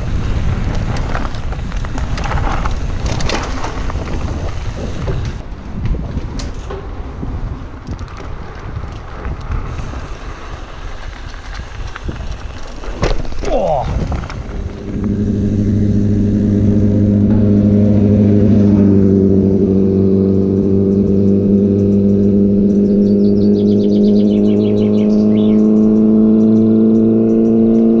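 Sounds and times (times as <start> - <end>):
car engine humming: 14.2 - 28.0
high chirping: 21.7 - 27.7.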